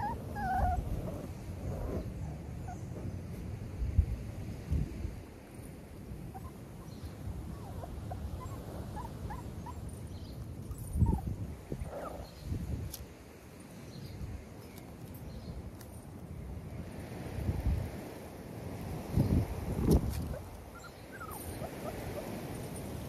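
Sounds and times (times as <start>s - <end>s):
puppies whimpering and yipping: 0.0s - 3.1s, 6.3s - 12.3s, 20.3s - 23.0s
wind gusts on microphone: 0.0s - 23.0s.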